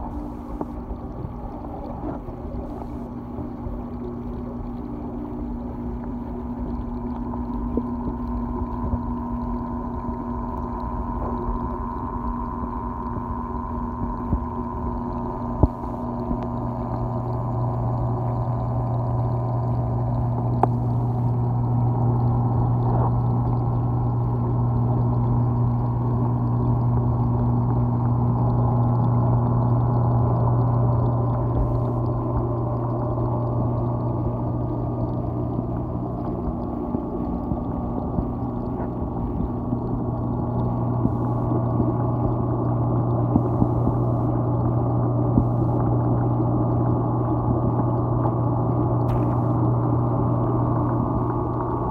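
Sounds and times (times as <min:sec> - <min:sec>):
aquarium pump hum: 0:00.0 - 0:51.9
circulating water: 0:00.0 - 0:51.9.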